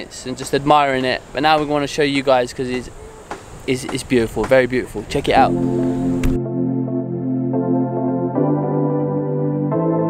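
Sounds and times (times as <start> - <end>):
ambient music of held chords: 5.4 - 10.0.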